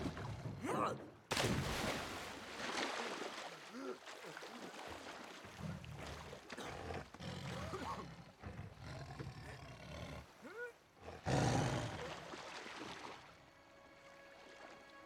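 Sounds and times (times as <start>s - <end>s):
tiger growling and roaring: 5.6s - 12.2s.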